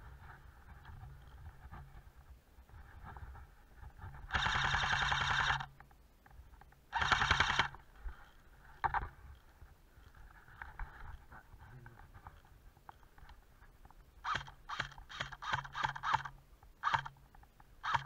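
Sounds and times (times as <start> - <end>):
airsoft rifle full-auto bursts: 4.3 - 5.7, 6.9 - 7.8, 14.2 - 17.2.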